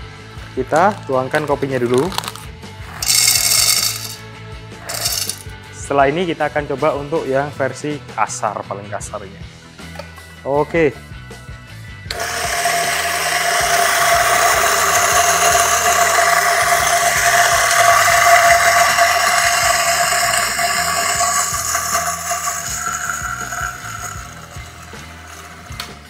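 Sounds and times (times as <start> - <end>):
electric coffee grinder running: 2.8 - 4.2, 4.8 - 5.5, 12.1 - 26.0.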